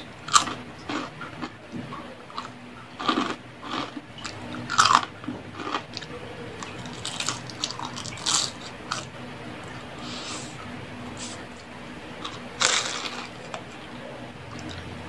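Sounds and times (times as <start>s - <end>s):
person chewing crispy food: 0.2s - 10.6s, 12.2s - 13.7s.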